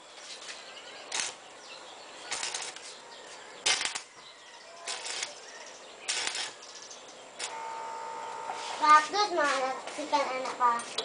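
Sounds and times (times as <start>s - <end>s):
electric arc welder crackling: 1.0s - 1.6s, 2.2s - 4.1s, 4.8s - 10.5s.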